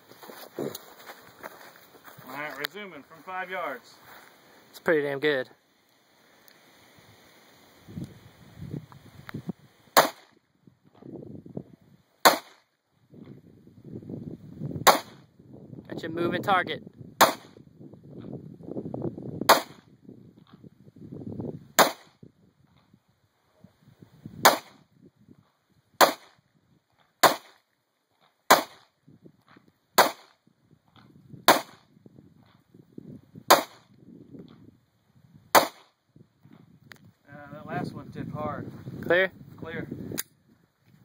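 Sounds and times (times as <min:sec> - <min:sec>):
handgun shots: 0:10.0 - 0:10.3, 0:12.2 - 0:12.6, 0:14.9 - 0:15.2, 0:17.2 - 0:17.5, 0:19.5 - 0:19.8, 0:21.8 - 0:22.1, 0:24.4 - 0:24.8, 0:26.0 - 0:26.3, 0:28.5 - 0:28.8, 0:30.0 - 0:30.3, 0:33.5 - 0:33.8, 0:35.5 - 0:35.9.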